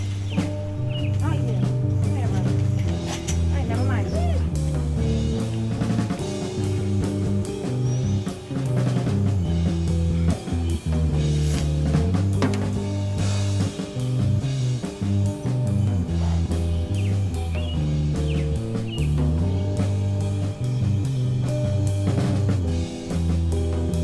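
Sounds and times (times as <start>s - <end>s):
band music with drum beat: 0.0s - 24.0s.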